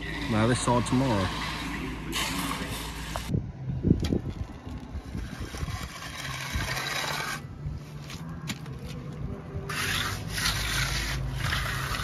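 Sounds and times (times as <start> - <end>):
trowel scraping wet concrete: 0.0 - 3.3, 5.0 - 7.5, 9.6 - 12.0.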